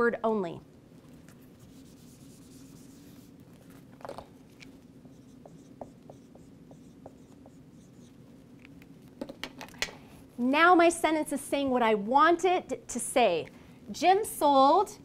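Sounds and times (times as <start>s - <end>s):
low room hum: 0.0s - 15.0s
marker squeaking on whiteboard: 5.0s - 8.2s.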